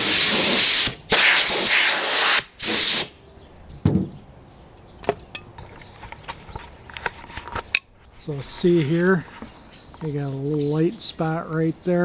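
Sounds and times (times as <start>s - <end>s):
air blow gun hissing: 0.0s - 3.2s.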